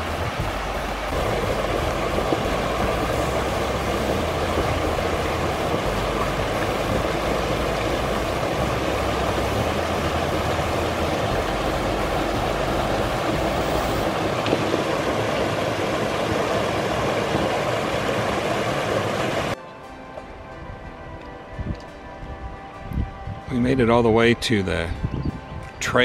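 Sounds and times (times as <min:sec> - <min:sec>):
creek rushing over rocks: 0:00.0 - 0:19.6.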